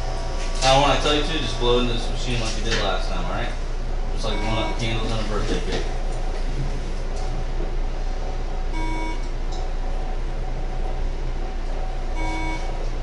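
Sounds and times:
low steady hum: 0.0s - 13.0s
short electronic beeps: 4.2s - 4.9s, 8.8s - 9.3s, 12.2s - 12.8s.

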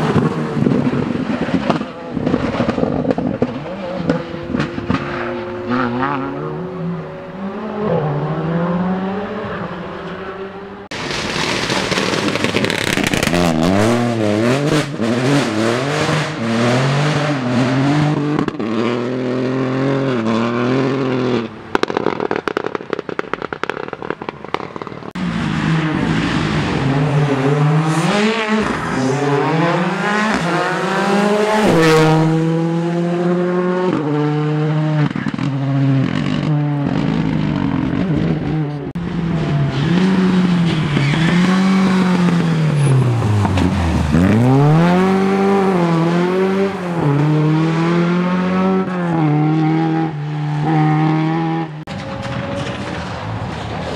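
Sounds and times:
engine crackling and popping: 0.0s - 5.2s, 10.9s - 14.0s, 21.7s - 25.2s, 51.8s - 53.9s
rally car engines revving hard: 0.0s - 11.3s, 12.8s - 21.6s, 25.1s - 53.1s.

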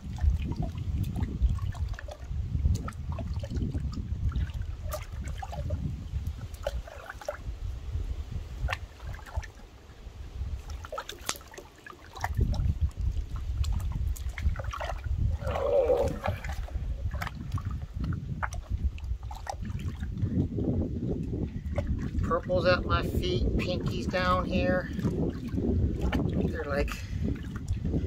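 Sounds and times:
wind rumble on microphone: 0.0s - 11.4s, 12.1s - 28.0s
water splashing in a washtub: 0.0s - 28.0s.

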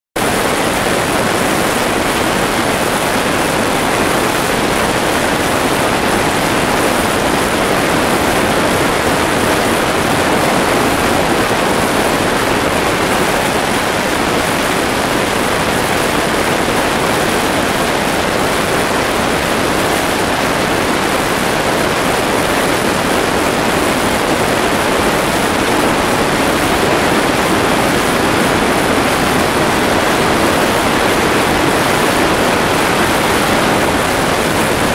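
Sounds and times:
rush of airflow: 0.2s - 34.9s
turboprop engine and propeller: 0.2s - 34.9s.

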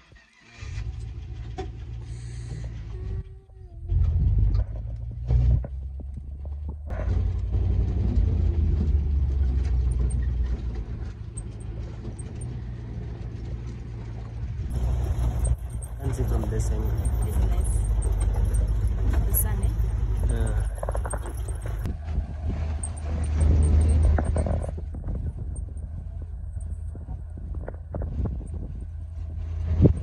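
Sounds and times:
vehicle jolts: 0.0s - 3.3s, 4.0s - 30.0s
vehicle engine and tyres rumbling: 0.0s - 30.0s
wind buffeting the microphone: 14.4s - 30.0s.

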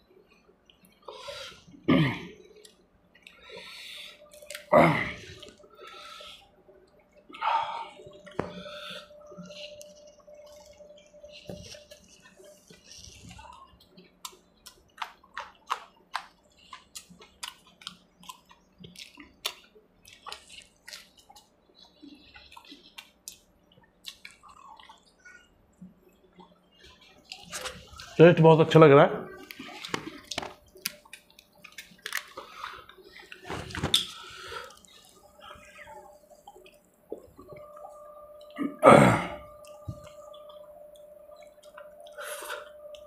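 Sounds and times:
wet chewing and lip smacking: 2.4s - 4.7s, 5.4s - 28.2s, 29.4s - 38.6s.

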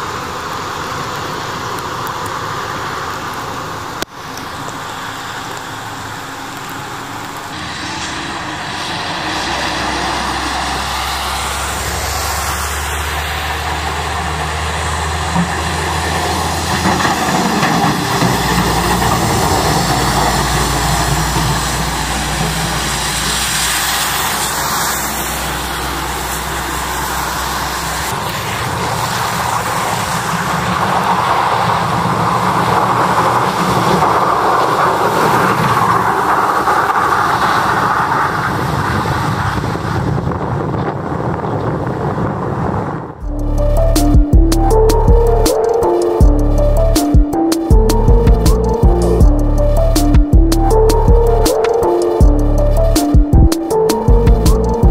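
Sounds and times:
truck engine hum: 0.0s - 39.1s, 43.2s - 54.9s
tyres and plowed snow rushing: 0.0s - 54.9s.

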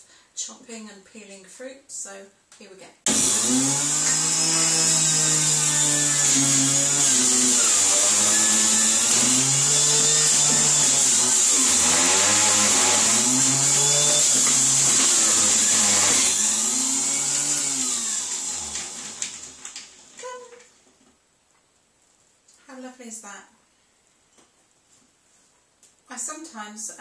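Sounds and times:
juicer grinding carrots: 3.1s - 20.6s.

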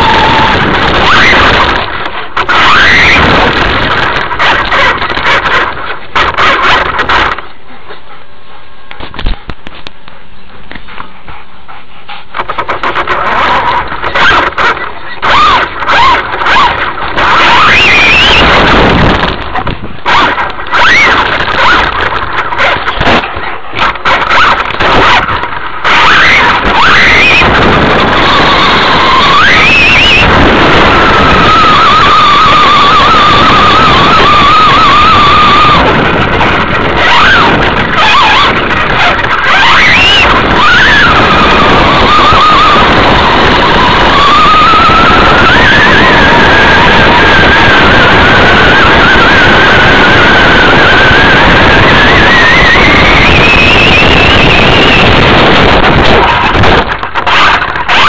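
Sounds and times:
loud rattling: 0.0s - 7.5s, 12.3s - 58.0s
wind noise: 0.0s - 7.9s, 8.7s - 58.0s
tyre noise: 9.0s - 58.0s.

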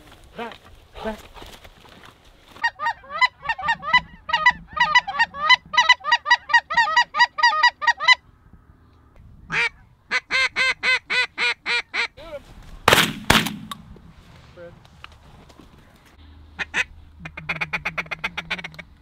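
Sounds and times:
snow goose honking: 2.6s - 8.2s, 16.6s - 18.9s.

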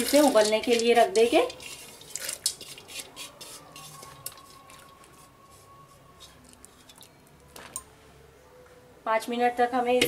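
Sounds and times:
grains scraped off a plate: 0.0s - 4.3s.

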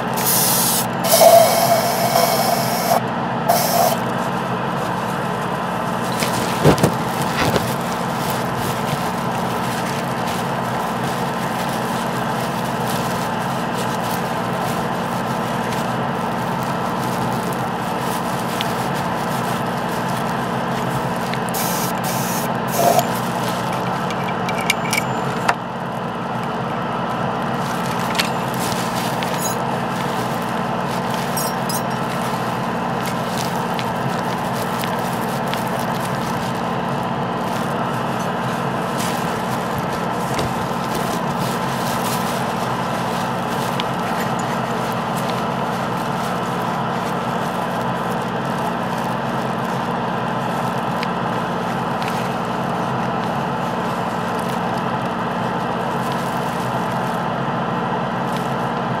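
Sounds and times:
air hiss: 0.0s - 7.1s, 19.8s - 23.4s
small electric motor humming: 0.0s - 25.5s.

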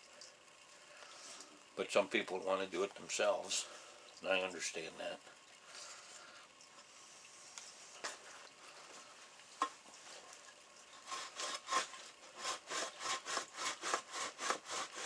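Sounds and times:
hide rasping against wood: 11.0s - 15.0s.

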